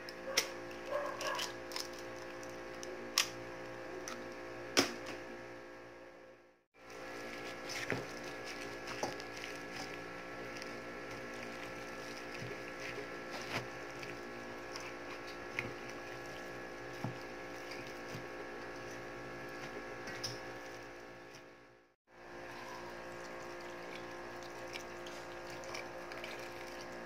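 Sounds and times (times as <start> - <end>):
steady hum with several tones: 0.0 - 27.0
filling being mixed in a bowl: 6.8 - 21.5, 22.2 - 27.0.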